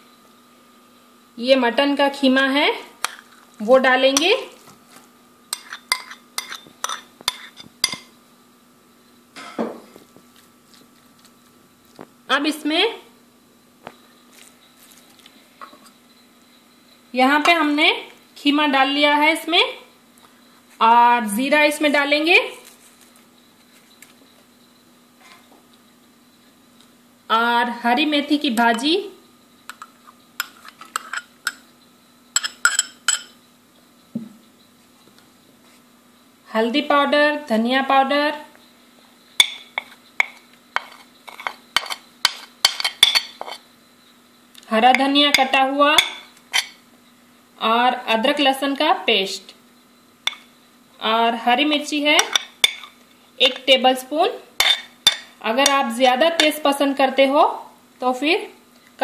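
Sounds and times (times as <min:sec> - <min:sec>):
metal spoon clinking against bowls: 0:05.5 - 0:08.1, 0:32.4 - 0:33.4, 0:39.4 - 0:43.6, 0:44.9 - 0:46.8, 0:50.3 - 0:50.5, 0:52.2 - 0:53.7, 0:54.6 - 0:56.6
spoon scraping bowl: 0:05.5 - 0:08.1, 0:30.0 - 0:31.3, 0:39.7 - 0:43.6, 0:45.0 - 0:46.8
steel spoon clinking on bowl: 0:05.5 - 0:08.1, 0:32.4 - 0:33.4.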